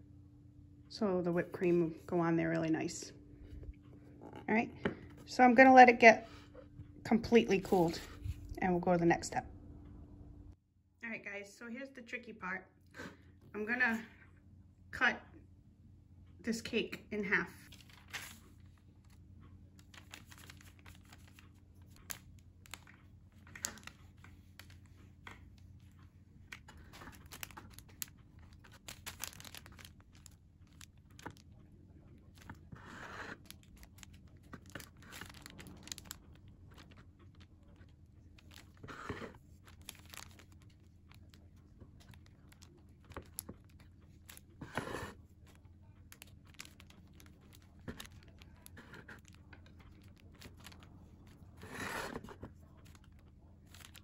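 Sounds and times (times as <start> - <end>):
parchment paper crinkling: 17.6 - 54.0.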